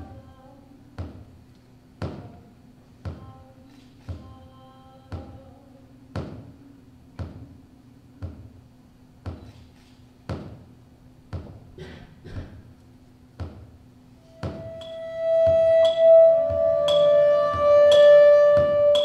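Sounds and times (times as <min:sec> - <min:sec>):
body percussion hits: 0:02.0 - 0:02.3, 0:06.1 - 0:07.6, 0:08.2 - 0:08.6, 0:09.2 - 0:10.7, 0:11.3 - 0:12.7, 0:13.3 - 0:13.8, 0:14.4 - 0:19.0.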